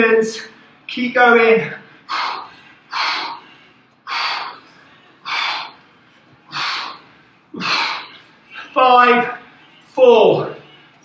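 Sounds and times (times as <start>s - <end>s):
man breathing hard: 1.7s - 8.3s.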